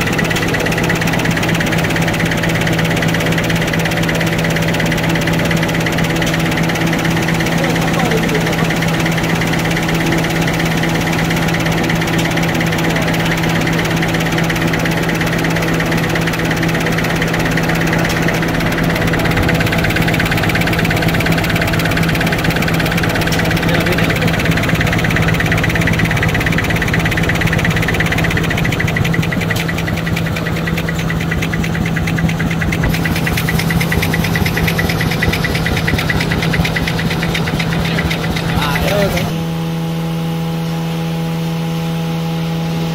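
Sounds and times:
fast mechanical ticking: 0:00.0 - 0:39.4
machine humming: 0:00.0 - 0:42.9.

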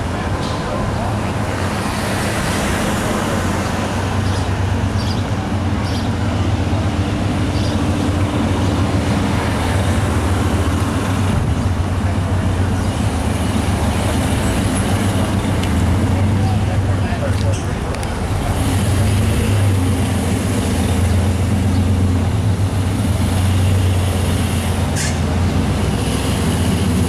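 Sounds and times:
street traffic hiss: 0:00.0 - 0:27.0.

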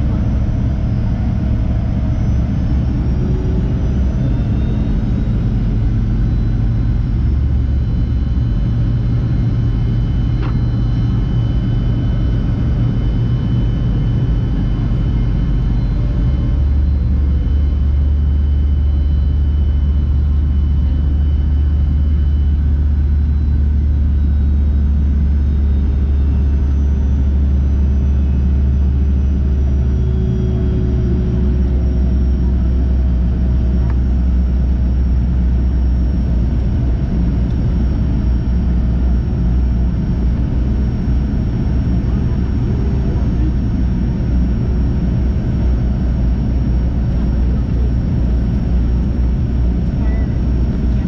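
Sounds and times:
jet engines droning: 0:00.0 - 0:51.0.

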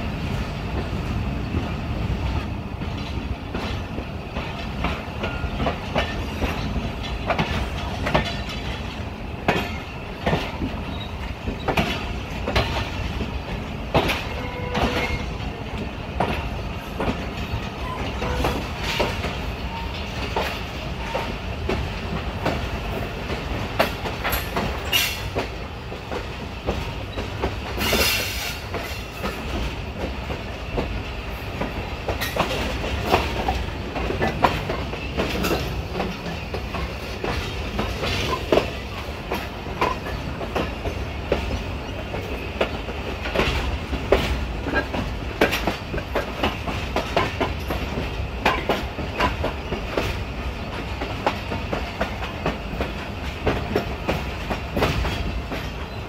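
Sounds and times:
train wheels rumbling on rails: 0:00.0 - 0:56.0
wheels clattering over rail joints: 0:01.5 - 0:31.0.

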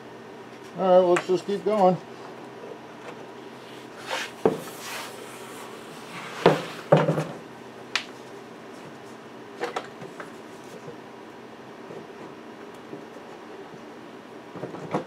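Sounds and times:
brushing scrape: 0:03.6 - 0:06.9.

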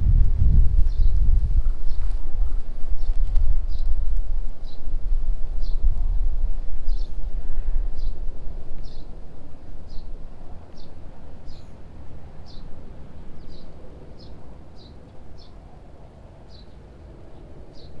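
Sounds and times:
steady low rumble: 0:00.0 - 0:18.0
small bird chirping: 0:10.7 - 0:11.8.

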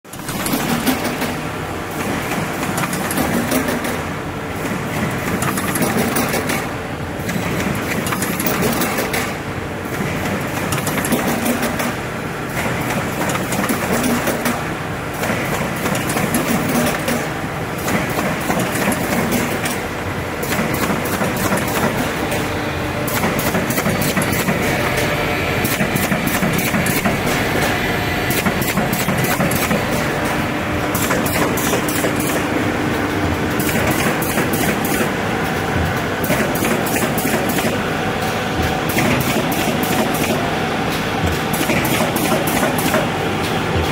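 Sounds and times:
machine mechanical clatter: 0:00.1 - 0:43.9
rapid pneumatic clicking: 0:35.9 - 0:37.8, 0:38.9 - 0:43.6.

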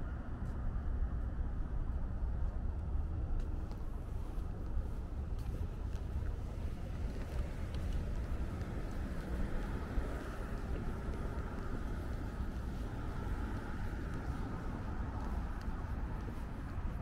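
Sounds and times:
road traffic rumble: 0:00.0 - 0:17.0
faint ticks: 0:07.0 - 0:17.0.

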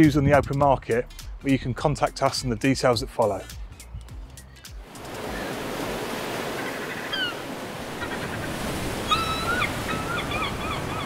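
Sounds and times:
surf washing onto beach: 0:04.8 - 0:11.0
gulls calling: 0:04.9 - 0:11.0.

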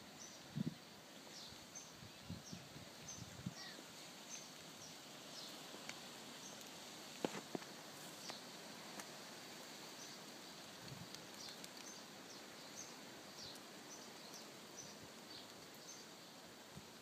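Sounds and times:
steady outdoor hiss: 0:00.0 - 0:17.0.

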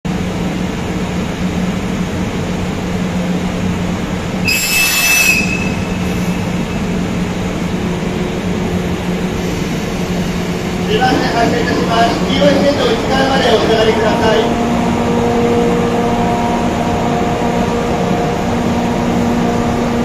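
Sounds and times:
electric locomotive humming: 0:00.1 - 0:20.0.

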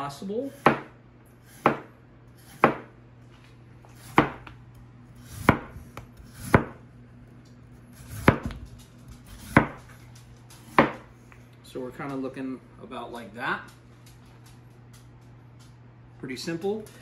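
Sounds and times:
knife slicing potatoes: 0:00.4 - 0:02.9, 0:03.9 - 0:04.5, 0:05.1 - 0:06.8, 0:07.8 - 0:08.6, 0:09.2 - 0:10.0.

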